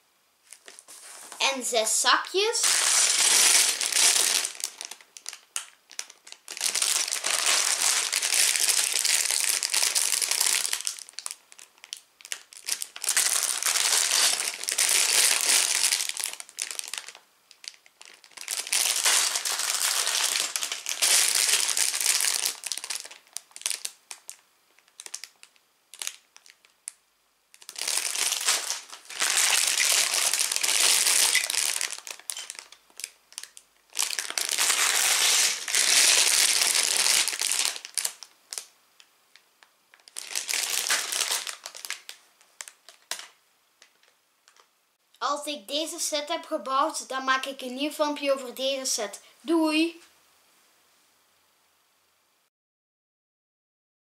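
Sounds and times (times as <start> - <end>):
plastic bags crinkling: 0.5 - 1.4, 2.4 - 38.7, 39.3 - 44.7.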